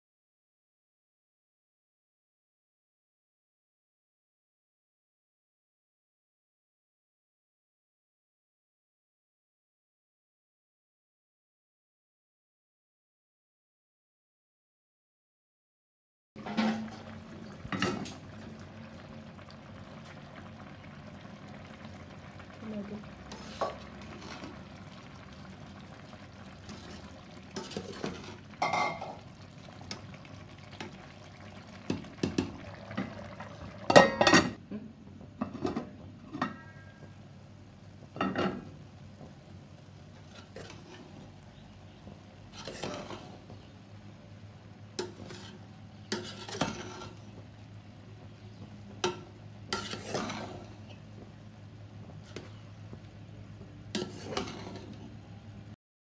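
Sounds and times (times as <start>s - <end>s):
spoon scraping and knocking a pot: 46.2s - 47.2s, 49.1s - 50.8s, 54.0s - 55.0s.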